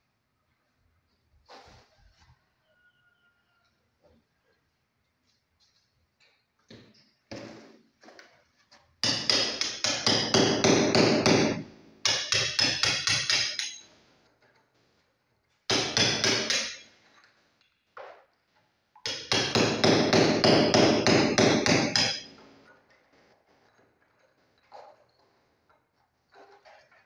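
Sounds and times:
hammer striking masonry wall: 9.0s - 13.9s, 15.7s - 16.9s, 19.0s - 22.6s.

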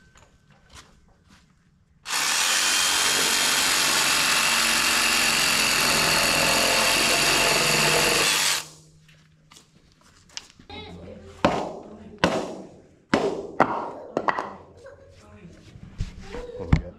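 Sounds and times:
cordless drill boring into wood: 2.1s - 8.7s.

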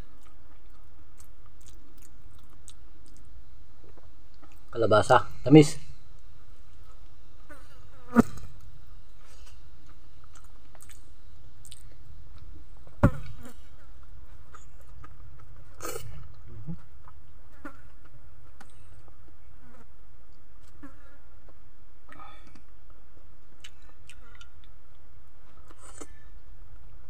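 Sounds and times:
chewing: 0.0s - 3.3s, 9.8s - 12.5s, 23.6s - 24.8s
flies buzzing: 6.1s - 12.2s.

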